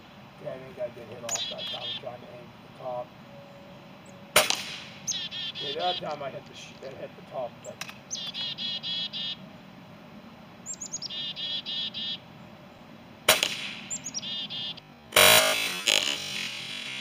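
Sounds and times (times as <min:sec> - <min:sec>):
chickadees calling: 0:00.0 - 0:17.0
air rifle shot: 0:04.4 - 0:05.1, 0:13.3 - 0:13.9.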